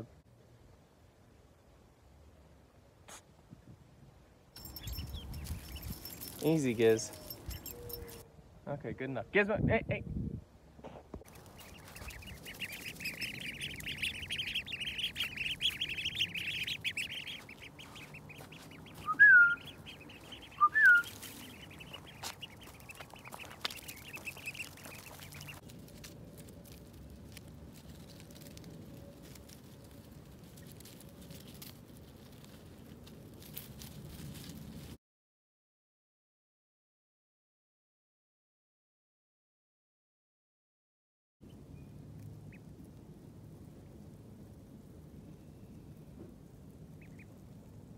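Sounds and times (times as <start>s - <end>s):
ducklings peeping: 4.6s - 8.2s, 11.2s - 33.0s, 46.9s - 47.6s
short loud duckling calls: 11.4s - 25.6s.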